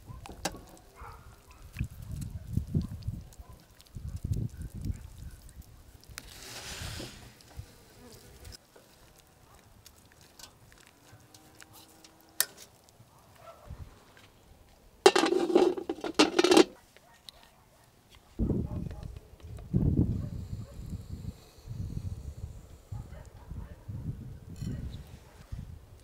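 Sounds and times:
water splashing into metal pans: 15.0 - 16.7.

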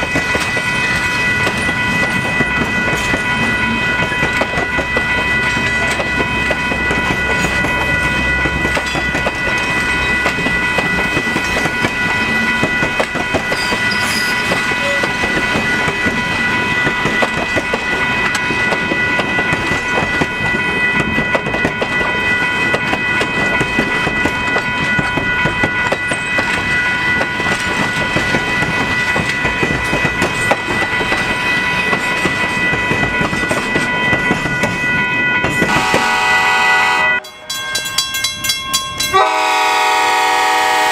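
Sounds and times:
train wheels clattering on track: 0.0 - 40.9.

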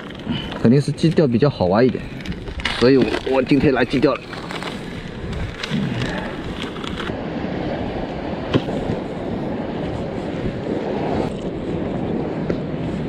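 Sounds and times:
wind on microphone: 0.0 - 13.0
sea surf against rocks: 4.9 - 13.0.

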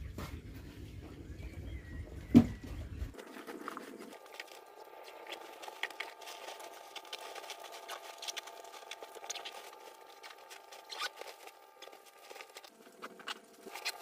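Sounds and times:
faint steady hum: 0.0 - 14.0
rustling of nylon bag: 3.1 - 14.0.

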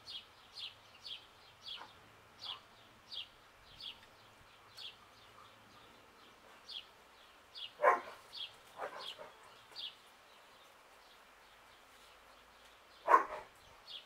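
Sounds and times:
dog barking sharply: 7.8 - 8.2, 13.1 - 13.5.

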